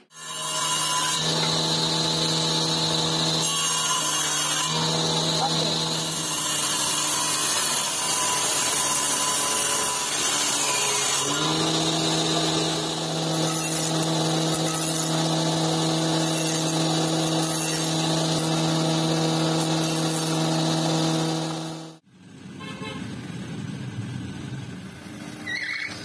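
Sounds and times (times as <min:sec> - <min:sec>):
table saw cutting wood: 0:00.0 - 0:22.0
jointer humming planing wood: 0:00.2 - 0:22.0.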